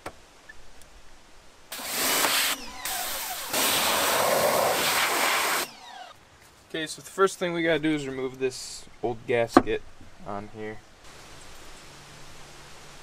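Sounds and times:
pressure washer spraying water: 1.7 - 5.9.

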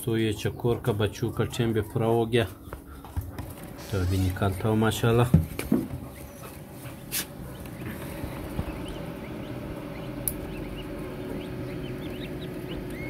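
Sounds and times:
chicks peeping faintly: 0.0 - 13.0
incubator hum: 0.0 - 13.0
incubator sharp clicks: 10.1 - 10.6.

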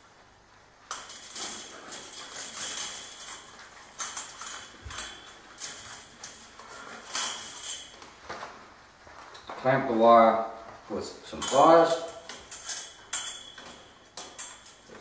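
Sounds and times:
wire scraping and clinking on mesh: 0.9 - 8.2, 11.3 - 15.0.

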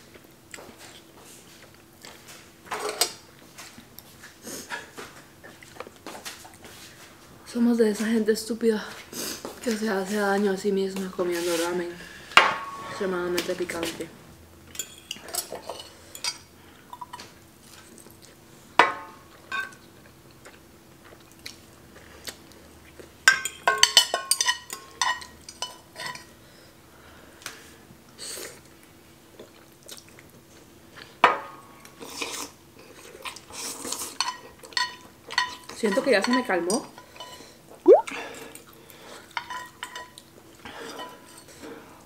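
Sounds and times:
soft chewing: 17.2 - 18.4, 20.0 - 23.1, 28.3 - 31.2.

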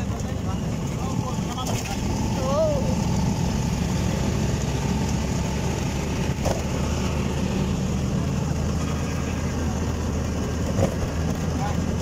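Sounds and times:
road noise: 0.0 - 12.0
vehicle engine hum: 0.0 - 12.0.

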